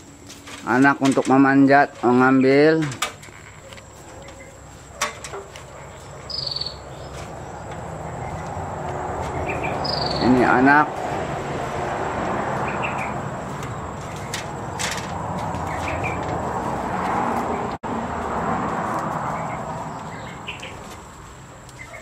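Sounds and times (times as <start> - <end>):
steady outdoor noise: 0.0 - 22.0
bird chirps: 5.7 - 8.6, 9.2 - 10.5, 12.6 - 14.4, 15.6 - 16.2, 19.2 - 20.9, 21.7 - 22.0.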